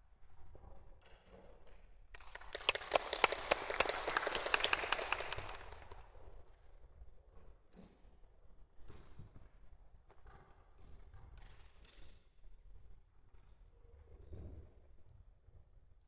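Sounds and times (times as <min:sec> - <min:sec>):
audience applauding: 0:02.2 - 0:06.0.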